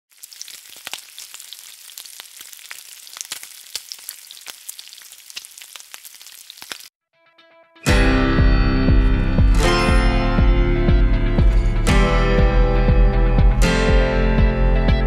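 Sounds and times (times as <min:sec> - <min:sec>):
food sizzling in hot oil: 0:00.1 - 0:06.9
oil crackling and popping: 0:00.1 - 0:06.9.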